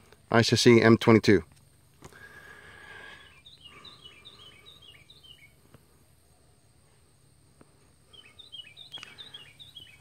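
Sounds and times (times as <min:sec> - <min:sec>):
bird chirping: 0:02.2 - 0:07.0, 0:08.0 - 0:10.0.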